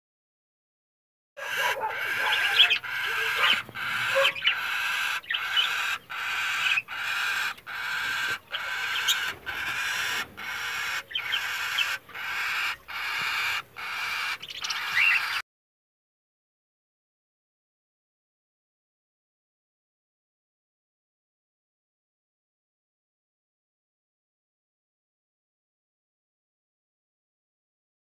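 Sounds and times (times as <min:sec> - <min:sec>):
bird chick raspy begging calls: 0:01.4 - 0:15.4.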